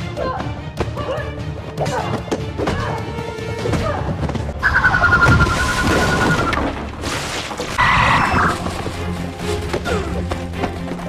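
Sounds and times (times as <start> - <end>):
piercing high scream tone: 4.6 - 6.6.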